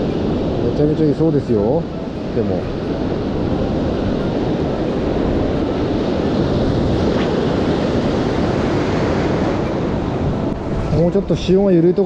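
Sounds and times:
surf breaking on beach: 0.0 - 12.0
wind on microphone: 0.0 - 12.0.

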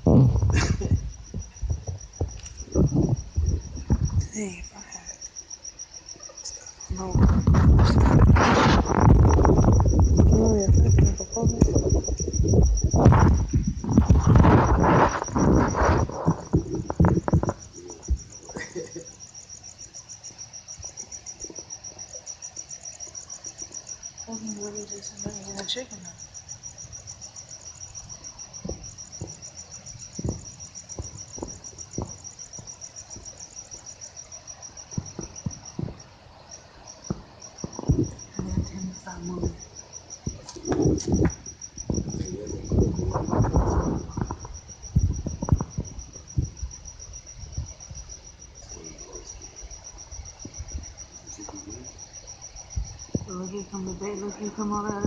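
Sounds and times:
cricket chirping: 0.0 - 55.0
knocks and rustles: 0.1 - 4.4, 7.0 - 18.8, 30.2 - 33.3, 35.0 - 36.1, 37.0 - 39.6, 40.2 - 48.0.

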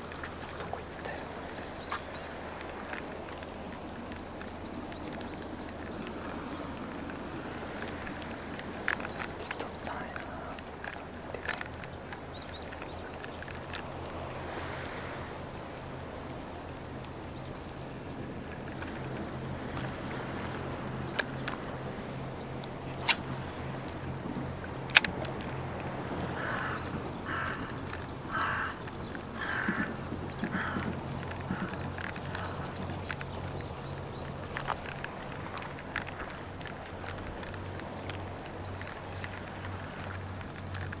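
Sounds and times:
insect drone: 0.0 - 41.0
low hum: 0.0 - 41.0
sharp clicks: 22.6 - 41.0.

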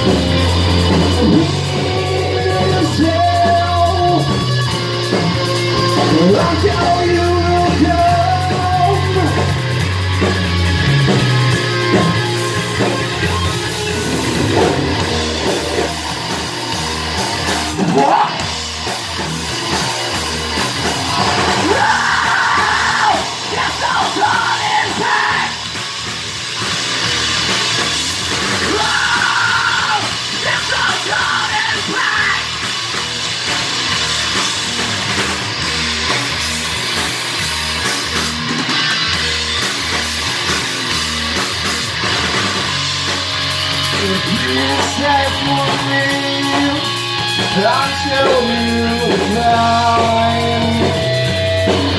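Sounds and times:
bass guitar: 0.0 - 51.9
drum kit: 0.0 - 51.9
electric guitar: 0.0 - 51.9
shouted vocals: 17.7 - 18.5, 21.0 - 25.7, 28.6 - 32.6.

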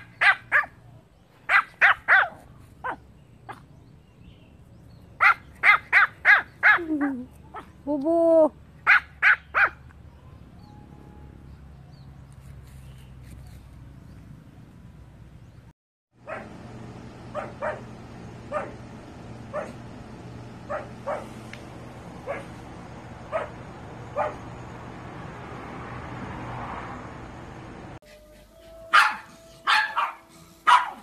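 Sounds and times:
small dog barking: 0.0 - 0.8, 1.5 - 3.7, 5.2 - 7.8, 8.8 - 9.8, 16.2 - 16.6, 17.3 - 17.9, 18.5 - 18.9, 19.5 - 19.8, 20.7 - 21.4, 22.2 - 22.6, 23.3 - 24.5, 28.9 - 31.0
steady low hum: 16.2 - 25.6.

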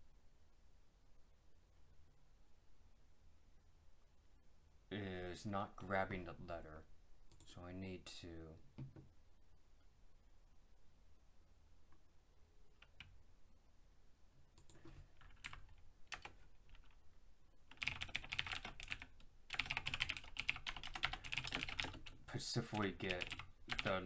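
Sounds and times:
typing on computer keyboard: 14.6 - 17.0, 17.7 - 22.2, 22.8 - 24.0.

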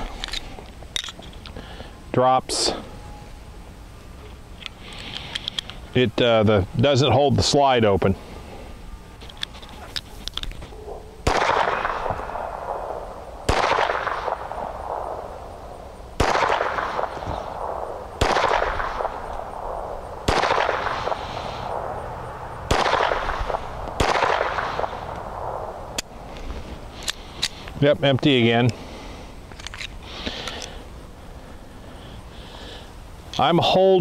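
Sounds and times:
pistol shots with echo: 10.9 - 15.4, 16.2 - 22.0, 22.7 - 25.8.

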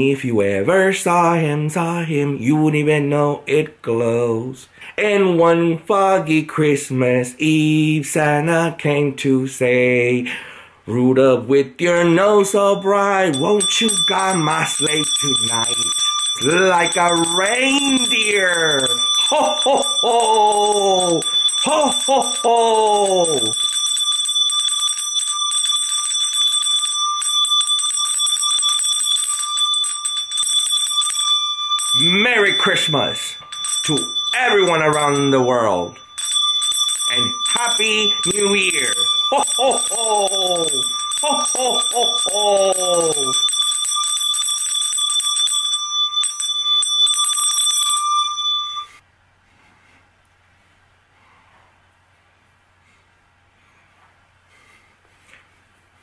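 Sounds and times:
handbell ringing: 13.3 - 49.0.

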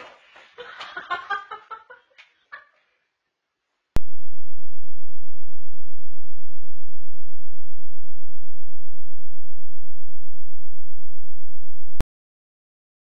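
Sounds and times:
loud steady low hum: 4.0 - 12.0.

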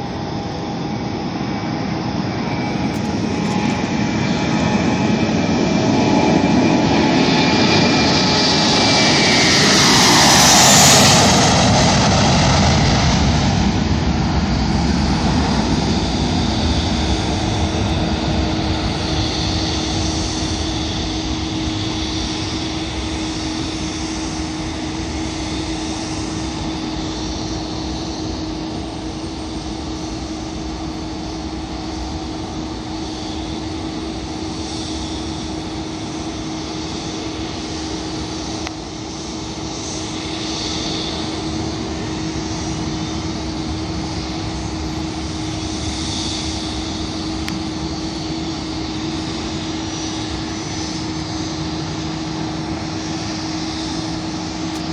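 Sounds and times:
constant humming tone: 0.0 - 54.9
jet aircraft drone: 0.0 - 54.9.

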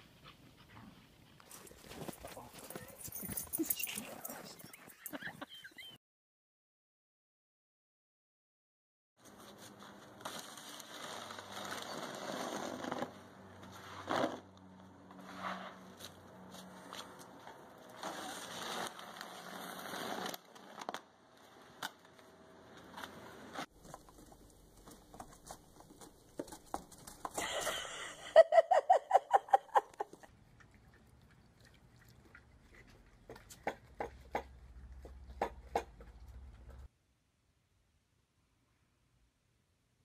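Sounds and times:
snow shovel scraping snow: 9.4 - 14.5, 15.2 - 16.0, 17.8 - 20.8.

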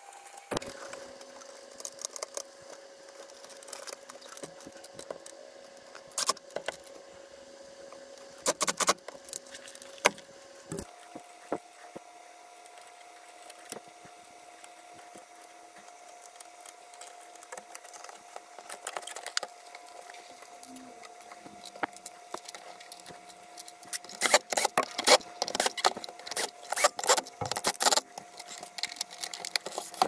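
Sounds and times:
plastic parts clicking and rattling: 3.1 - 5.4, 12.7 - 30.0.

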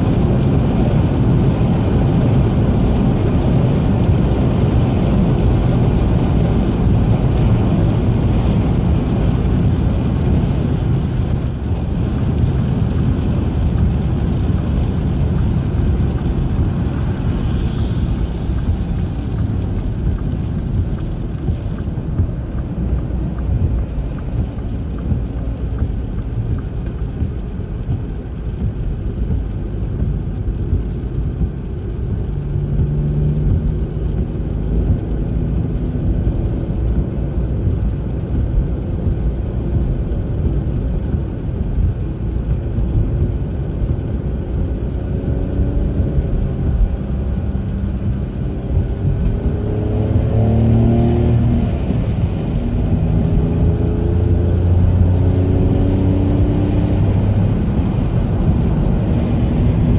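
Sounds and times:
car cabin road rumble: 0.0 - 59.9.

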